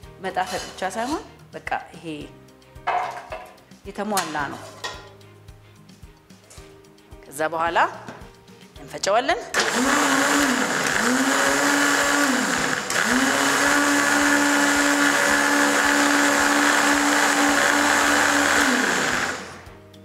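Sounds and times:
blender motor: 9.6s - 19.7s.

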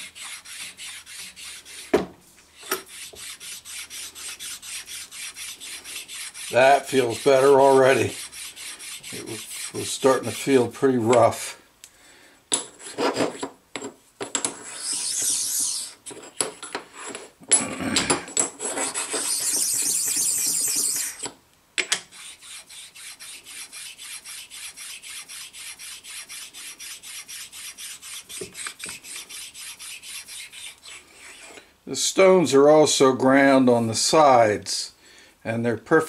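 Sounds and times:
stone rubbing on cast iron: 0.0s - 1.9s, 2.5s - 10.4s, 14.5s - 17.2s, 18.5s - 21.3s, 22.0s - 31.6s.

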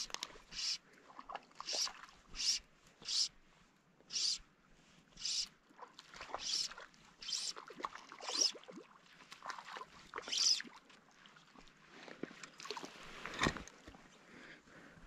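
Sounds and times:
fly line stripping hiss: 0.0s - 0.8s, 1.7s - 3.3s, 4.1s - 4.4s
light water splashing: 0.0s - 3.3s, 5.2s - 14.2s.

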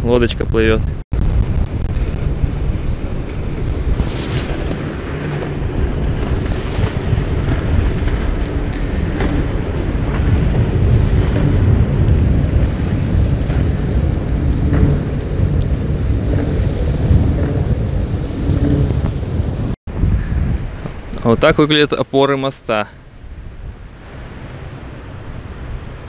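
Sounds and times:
wind buffeting microphone: 0.0s - 22.1s, 23.0s - 26.0s
sea water washing on rocks: 3.6s - 17.5s.

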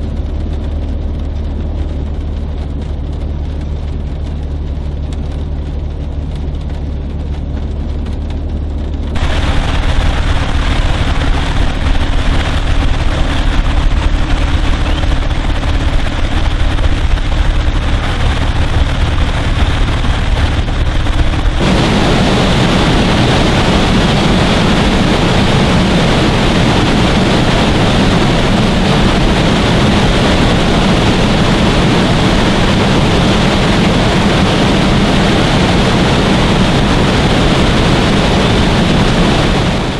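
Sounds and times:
vehicle engine idling: 0.0s - 25.3s
water pouring down spillway: 0.0s - 39.9s
rushing creek: 9.2s - 19.9s.

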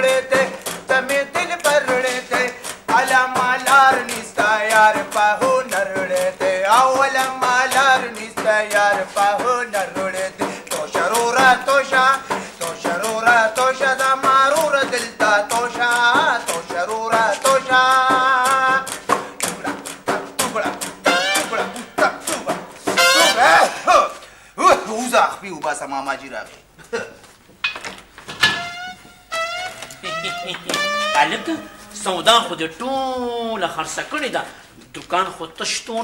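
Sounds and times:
instrumental accompaniment: 0.0s - 23.7s, 28.4s - 32.9s
quick percussive beat: 0.0s - 23.9s, 28.6s - 32.8s
man singing: 0.0s - 24.2s, 30.0s - 33.8s.

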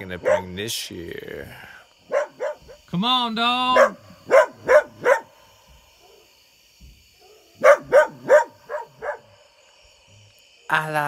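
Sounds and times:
crickets chirring: 0.0s - 11.0s
dog barking: 0.2s - 0.6s, 2.1s - 2.8s, 3.7s - 5.4s, 6.0s - 6.3s, 7.2s - 9.4s.

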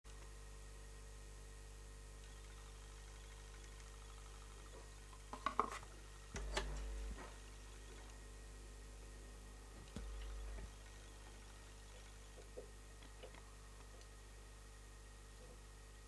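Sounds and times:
faint mains hum: 0.1s - 16.0s
turntable clicks: 9.8s - 14.1s.

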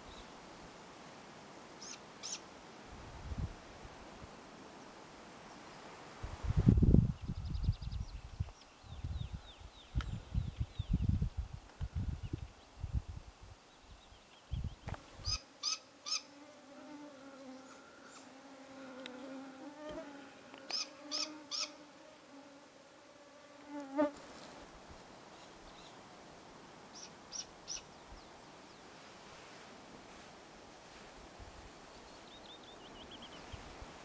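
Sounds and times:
insect buzzing: 14.8s - 24.5s
bird short high calls: 20.7s - 21.8s.

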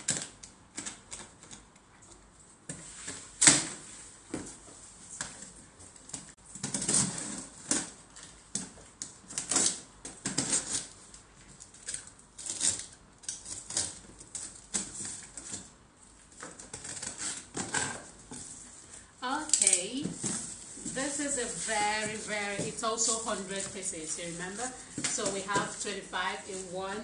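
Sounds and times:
cardboard rustling: 19.9s - 27.0s.

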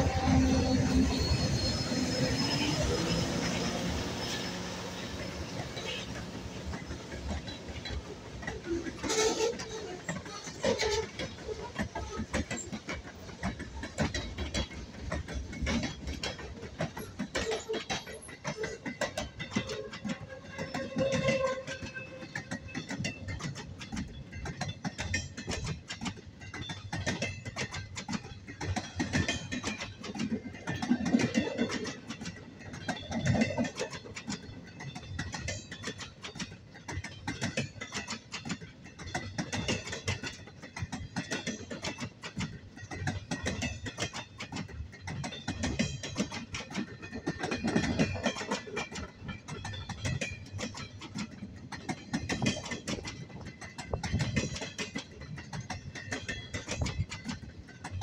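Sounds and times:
freight train rumbling past: 0.0s - 25.5s
rapid clacking and rattling: 4.2s - 58.0s.

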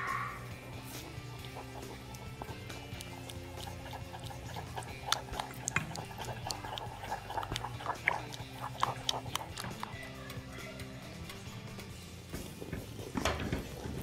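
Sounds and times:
wooden spoon scraping a pan: 12.3s - 14.0s.

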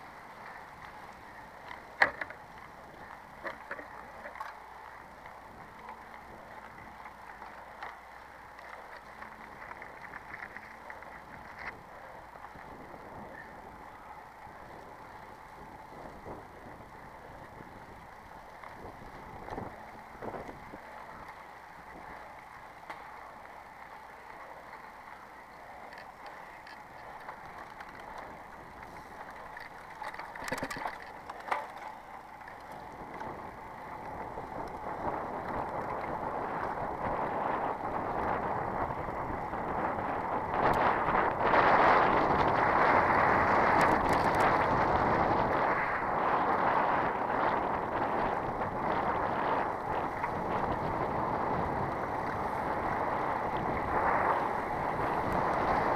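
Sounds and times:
bicycle tyres on gravel: 0.0s - 55.9s
wind on microphone: 8.6s - 22.5s, 32.6s - 55.9s.

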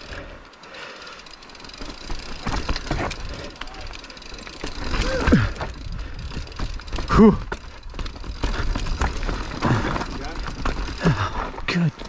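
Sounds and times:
mountain bike rattling over rough trail: 0.0s - 12.0s
tyre noise: 0.0s - 12.0s
rider wordless vocal sounds: 3.1s - 5.9s, 6.9s - 7.7s, 9.5s - 12.0s.

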